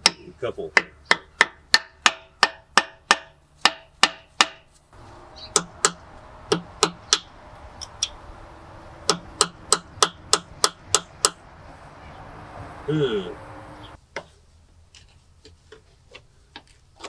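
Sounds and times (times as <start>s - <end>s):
hammer striking metal: 5.5s - 8.2s, 9.0s - 11.5s.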